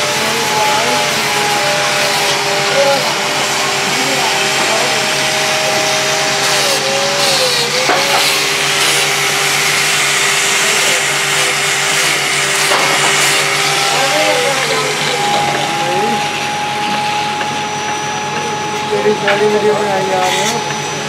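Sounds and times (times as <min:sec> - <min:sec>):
grinding wheel motor hissing: 0:00.0 - 0:21.0.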